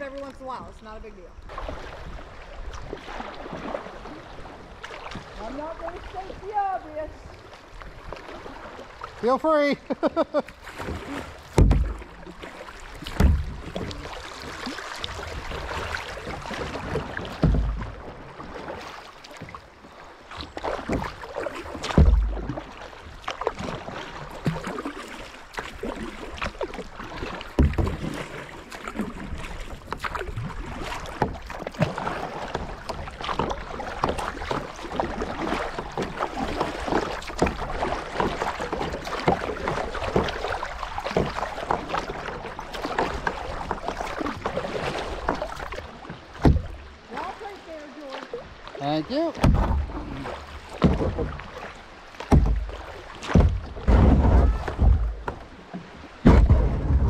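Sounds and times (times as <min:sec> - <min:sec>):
water splashing around kayak: 0:00.0 - 0:57.0
dull low thumps: 0:11.5 - 0:12.4, 0:13.0 - 0:14.1, 0:21.8 - 0:22.6, 0:49.4 - 0:51.4, 0:52.3 - 0:55.5, 0:56.2 - 0:57.0.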